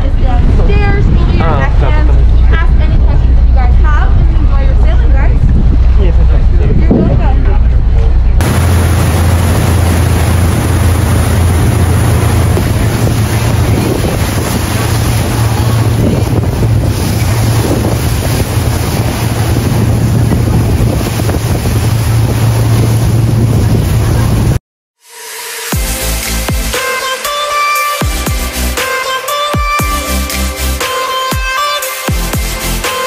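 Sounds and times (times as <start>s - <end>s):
boat engine drone: 0.0s - 24.6s
wind buffeting microphone: 0.0s - 24.6s
water rushing along boat hull: 8.4s - 24.6s.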